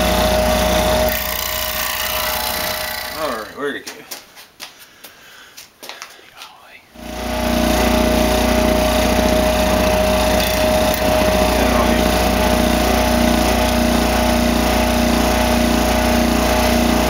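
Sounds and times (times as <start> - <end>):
scroll saw cutting wood: 0.0 - 3.6, 7.0 - 17.0.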